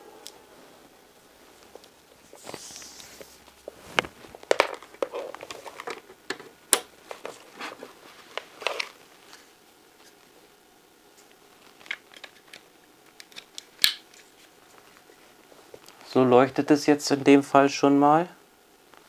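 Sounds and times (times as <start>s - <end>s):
cables rustling: 0.0s - 10.4s.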